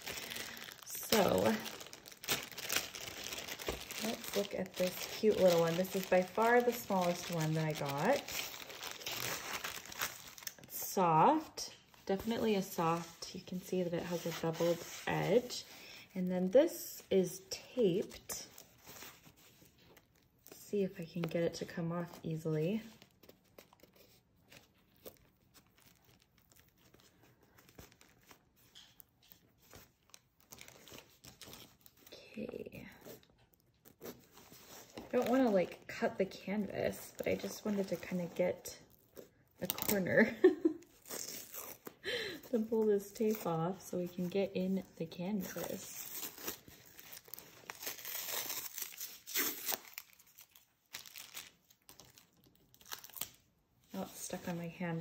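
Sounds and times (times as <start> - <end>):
paper wrapper crinkling: 0.0 - 15.8, 22.1 - 54.5
adhesive tape peeling: 46.2 - 51.4.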